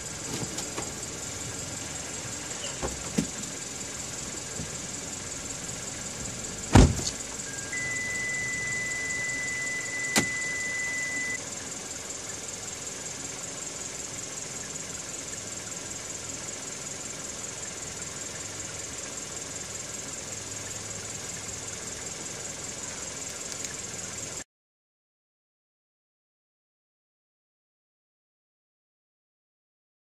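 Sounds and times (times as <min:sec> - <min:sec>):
car engine idling: 0:00.0 - 0:24.4
high beep: 0:07.4 - 0:11.4.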